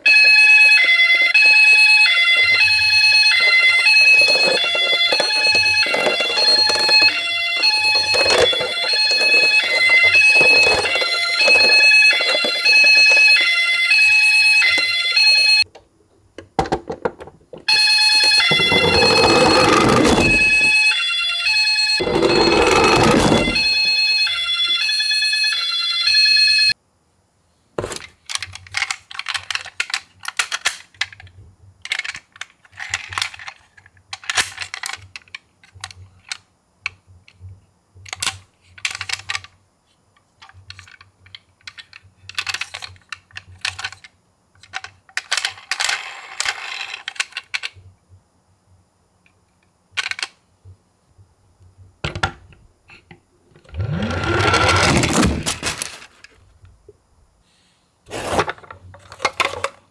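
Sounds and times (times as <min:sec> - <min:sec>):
electronic siren: 0:00.0 - 0:15.6, 0:17.7 - 0:26.8, 0:53.6 - 0:55.5
toy handled in cardboard box: 0:00.7 - 0:13.6, 0:22.0 - 0:23.9, 0:53.7 - 0:56.4, 0:58.1 - 0:59.7.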